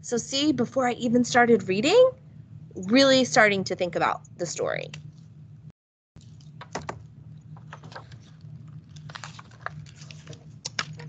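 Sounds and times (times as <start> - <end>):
steady low hum: 0.0 - 11.0
pages rustling: 6.2 - 11.0
book clicks and taps: 6.6 - 7.0.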